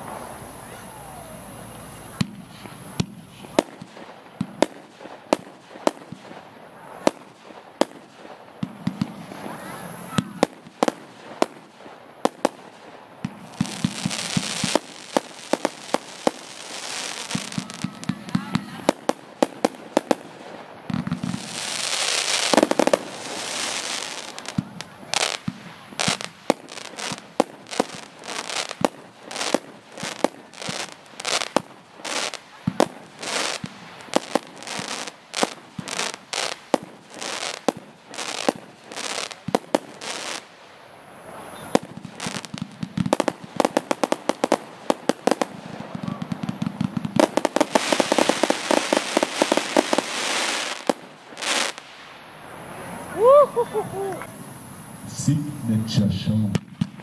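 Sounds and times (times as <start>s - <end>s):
firework hissing and crackle: 0.0s - 57.0s
firework launch shots and bursts: 7.0s - 40.5s, 41.4s - 52.2s.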